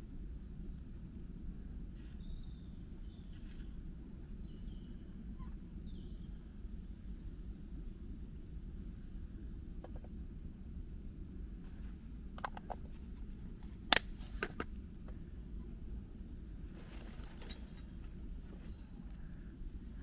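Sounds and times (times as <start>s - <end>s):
steady low rumble: 0.0s - 20.0s
sharp clicks and knocks: 12.4s - 13.0s, 13.6s - 15.2s.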